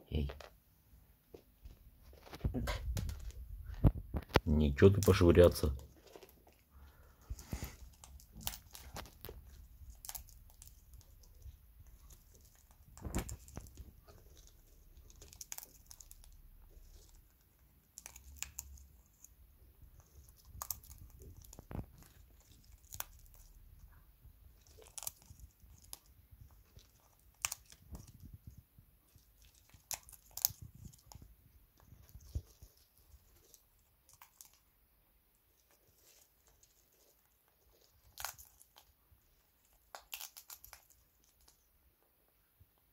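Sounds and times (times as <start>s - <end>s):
parrot cracking seeds: 4.2s - 19.3s, 20.0s - 23.7s, 24.6s - 28.2s, 29.1s - 31.3s, 35.6s - 41.6s.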